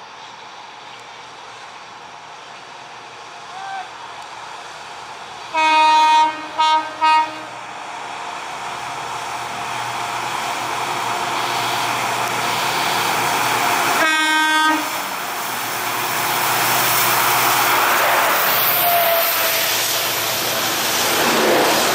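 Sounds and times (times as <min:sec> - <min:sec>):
locomotive engine: 0:00.0 - 0:21.9
train running noise: 0:00.0 - 0:21.9
locomotive horn blasts: 0:05.5 - 0:07.5, 0:14.0 - 0:15.0.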